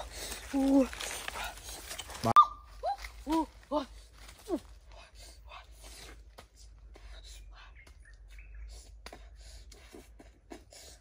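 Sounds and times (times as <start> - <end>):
soft rustling of fruit: 0.0 - 6.8
faint bird chirps: 7.1 - 9.4.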